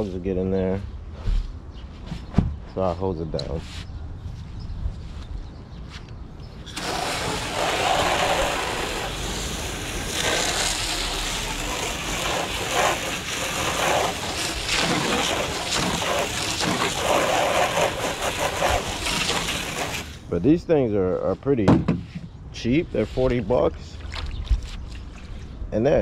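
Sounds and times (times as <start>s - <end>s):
hose spraying into plastic tub: 6.7s - 20.3s.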